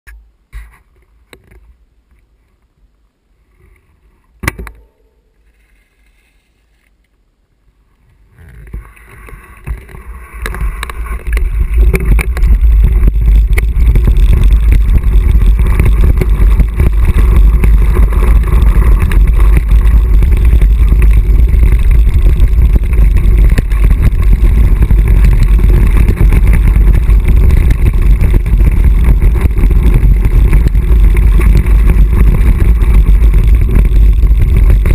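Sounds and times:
bike bumps and rattles: 0:08.7 - 0:34.9
wind buffeting microphone: 0:08.7 - 0:34.9.

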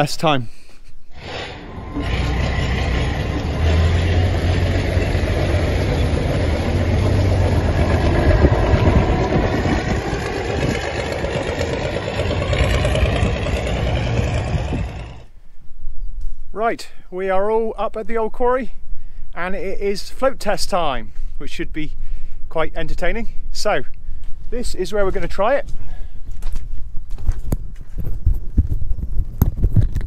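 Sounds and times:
truck engine running: 0:01.2 - 0:15.3.

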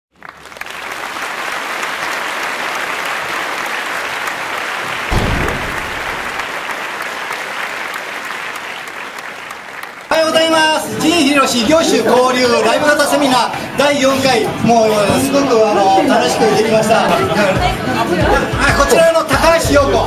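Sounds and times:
audience applauding: 0:00.1 - 0:11.1
dull low thump: 0:05.1 - 0:06.4.

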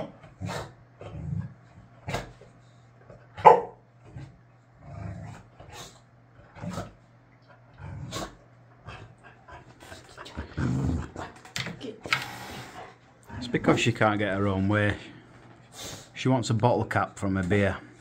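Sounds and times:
dog barking and growling: 0:00.0 - 0:02.4, 0:03.3 - 0:04.3.

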